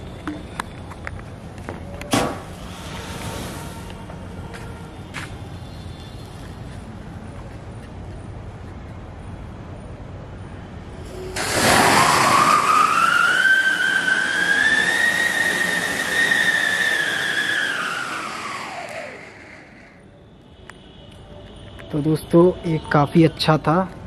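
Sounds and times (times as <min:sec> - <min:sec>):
firework fountain hissing spray: 0:02.2 - 0:04.0, 0:11.0 - 0:20.0
firework whistle rising in pitch: 0:11.1 - 0:20.2.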